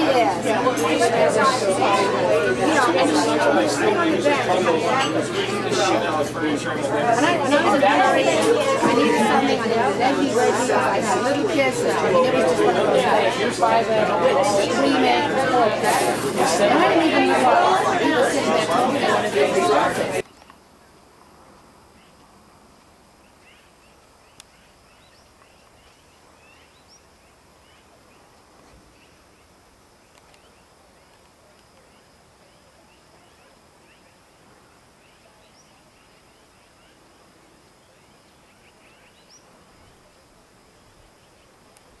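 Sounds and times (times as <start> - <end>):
low steady hiss: 0.0 - 42.0
distant birds chirping: 23.0 - 41.8.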